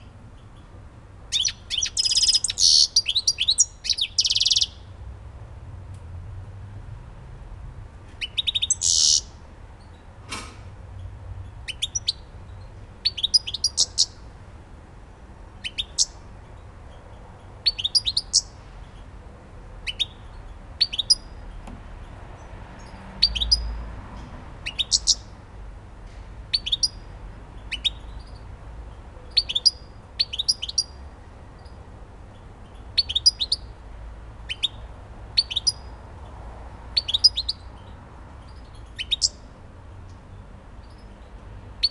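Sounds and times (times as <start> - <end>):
goldfinch chirping: 1.3 - 4.8, 8.2 - 10.0, 11.6 - 14.2, 15.6 - 16.2, 16.9 - 18.6, 19.8 - 21.3, 22.9 - 23.7, 24.6 - 25.3, 26.5 - 27.0, 27.6 - 28.4, 29.3 - 31.0, 31.6 - 33.7, 34.5 - 35.9, 37.0 - 39.4.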